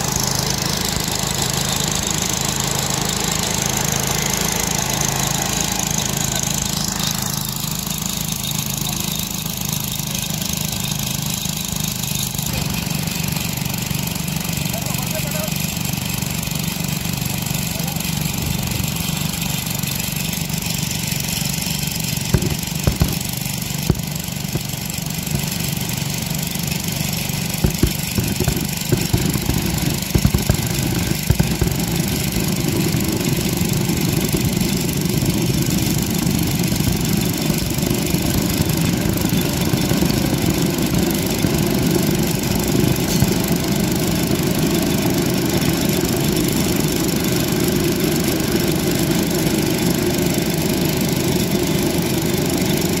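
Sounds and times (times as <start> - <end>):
small engine running: 0.0 - 53.0
sharp metallic knocks: 22.3 - 26.3, 27.6 - 32.2.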